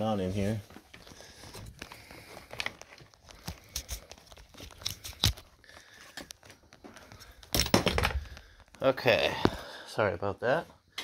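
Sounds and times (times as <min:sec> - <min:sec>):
tools knocking and clattering: 0:07.5 - 0:08.4.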